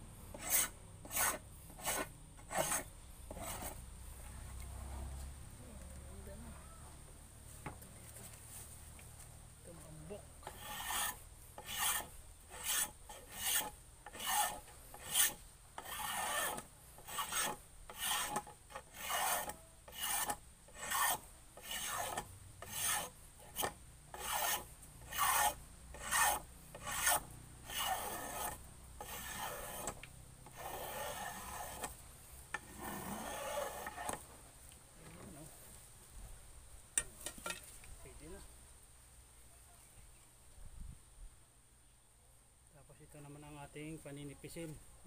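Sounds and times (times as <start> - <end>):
hand tool rasping wood: 0.3 - 3.8, 10.4 - 34.3.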